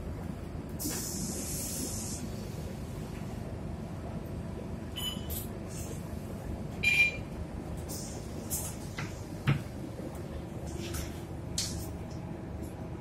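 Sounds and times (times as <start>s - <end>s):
short high hisses: 0.8s - 2.3s.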